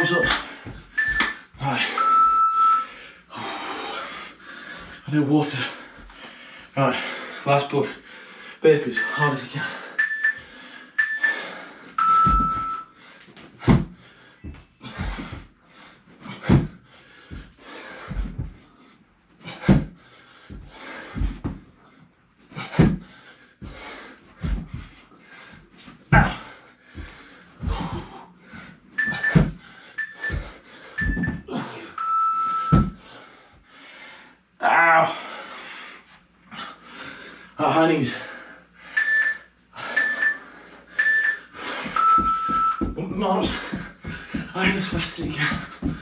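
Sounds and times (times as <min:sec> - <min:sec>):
workout timer beeps: 0:00.0 - 0:03.0, 0:08.8 - 0:13.0, 0:29.0 - 0:33.1, 0:38.9 - 0:46.0
person panting hard: 0:00.3 - 0:02.0, 0:02.8 - 0:32.0, 0:32.8 - 0:34.5, 0:35.1 - 0:46.0
heavy thud on floor: 0:30.3 - 0:31.5.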